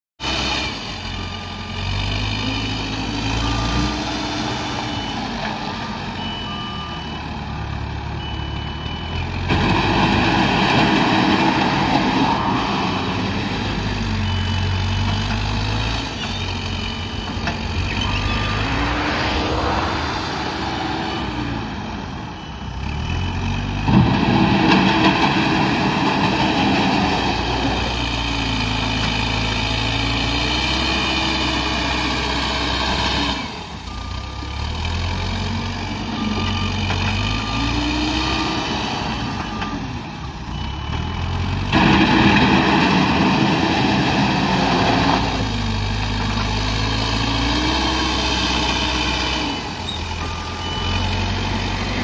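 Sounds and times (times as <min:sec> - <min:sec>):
diesel engine revving: 0:00.2 - 0:52.0
reversing alarm beeps: 0:00.6 - 0:09.5, 0:11.2 - 0:24.7, 0:29.3 - 0:41.7, 0:47.0 - 0:52.0.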